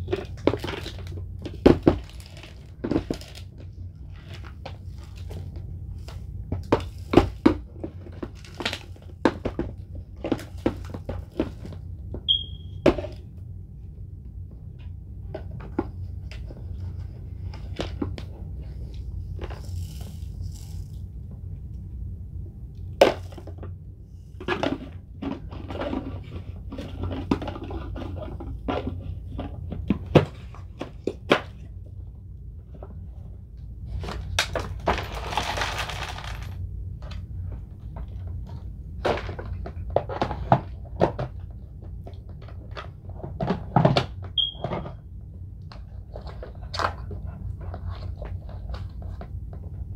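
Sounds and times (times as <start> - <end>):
debris rattling in vacuum: 34.0 - 36.6.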